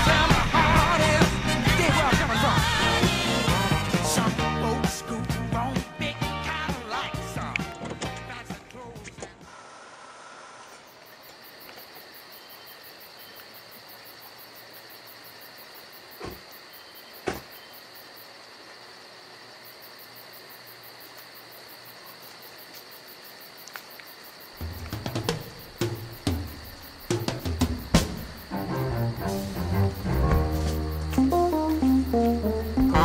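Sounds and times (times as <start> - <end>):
crickets trilling: 4.8 - 33.0
music with low beat: 24.6 - 33.0.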